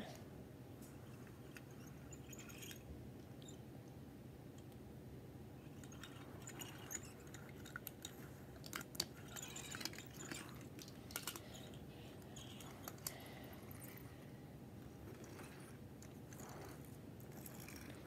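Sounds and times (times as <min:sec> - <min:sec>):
toy cars clacking together: 0:05.8 - 0:14.1.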